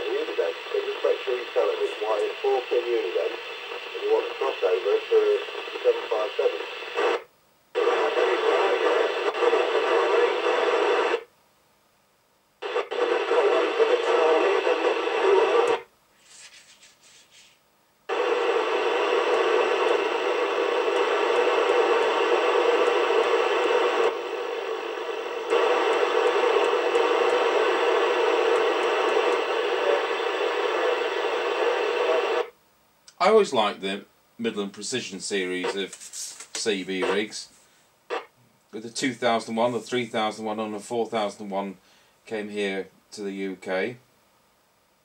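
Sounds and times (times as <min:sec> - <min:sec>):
radio receiver hiss: 0:00.0 - 0:11.3, 0:12.6 - 0:43.9.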